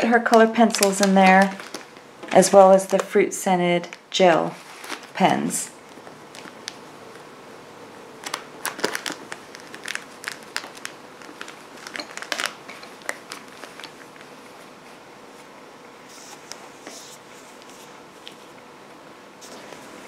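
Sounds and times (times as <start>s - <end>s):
plastic packaging crinkling: 0.0s - 7.3s, 8.2s - 14.4s.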